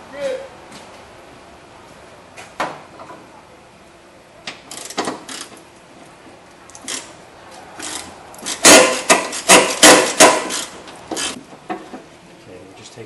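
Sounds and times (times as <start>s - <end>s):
ratchet clicking: 4.7s - 5.6s, 7.8s - 11.4s
metallic clacking and rattling: 7.8s - 12.0s.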